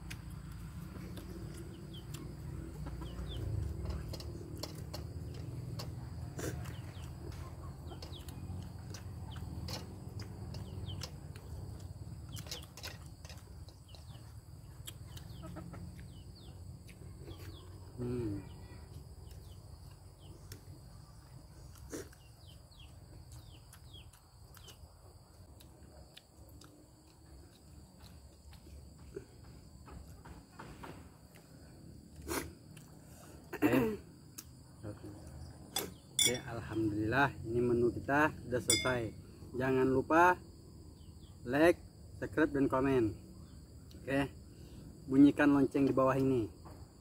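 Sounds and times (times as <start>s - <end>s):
chickens clucking: 0.8s - 18.4s
clicks and taps from eating: 3.8s - 14.2s.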